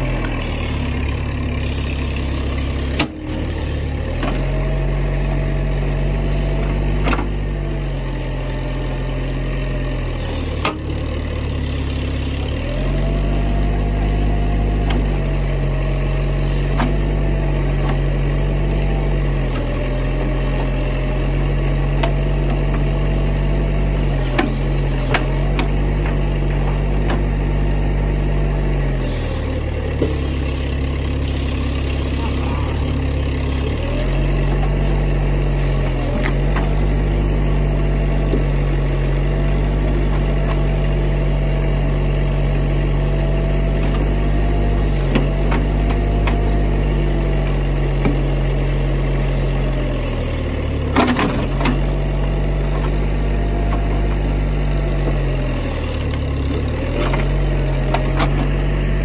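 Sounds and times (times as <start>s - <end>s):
digger diesel engine: 0.0s - 59.0s.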